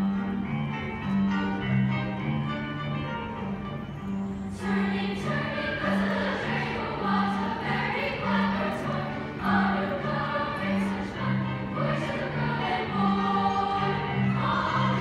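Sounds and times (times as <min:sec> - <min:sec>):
women's choir singing: 0:04.5 - 0:15.0.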